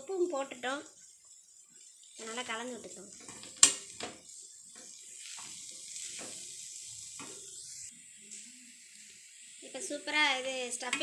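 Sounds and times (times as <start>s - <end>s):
spatula scraping a pan: 1.2s - 8.7s.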